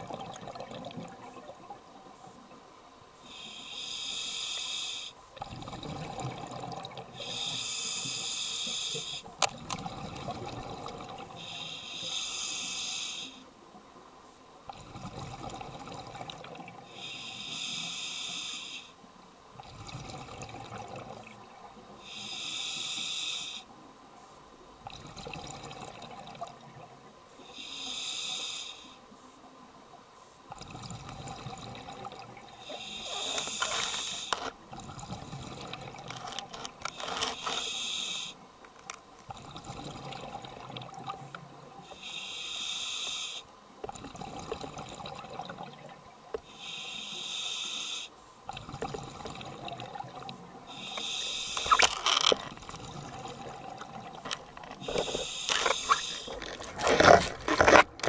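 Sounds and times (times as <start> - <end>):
burble of exhaled bubbles: 0.0 - 1.6, 5.4 - 7.1, 9.6 - 11.3, 14.7 - 16.8, 19.6 - 21.3, 39.3 - 41.2, 43.9 - 45.9, 48.5 - 50.4, 51.7 - 58.0
regulator hissing inhalations: 3.2 - 5.2, 7.2 - 9.3, 11.4 - 13.4, 16.9 - 19.0, 22.0 - 23.7, 27.5 - 29.0, 32.6 - 34.5, 36.1 - 38.4, 41.9 - 43.5, 46.4 - 48.2, 50.7 - 52.3, 54.8 - 56.7.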